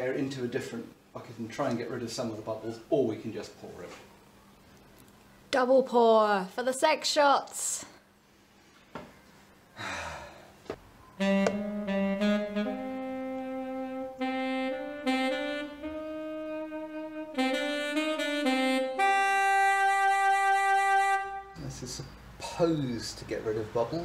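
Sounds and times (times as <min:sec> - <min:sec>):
slow saxophone melody: 0:11.2 - 0:21.6.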